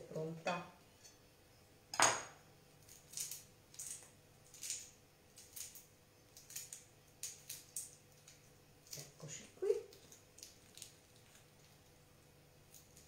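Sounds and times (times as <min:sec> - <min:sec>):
low steady hum: 0:00.0 - 0:13.0
prawn shell crackling as peeled: 0:02.8 - 0:13.0.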